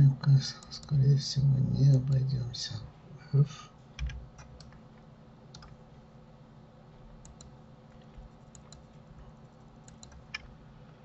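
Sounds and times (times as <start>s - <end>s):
low steady hum: 0.0s - 11.0s
keyboard and mouse clicks: 4.0s - 4.8s, 5.5s - 5.8s, 7.2s - 9.0s, 9.8s - 10.5s.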